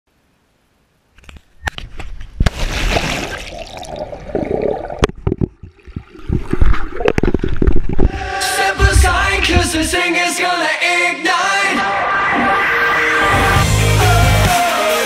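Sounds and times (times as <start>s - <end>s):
water sloshing and bubbling: 1.2s - 10.0s
sharp knocks: 8.8s - 10.0s.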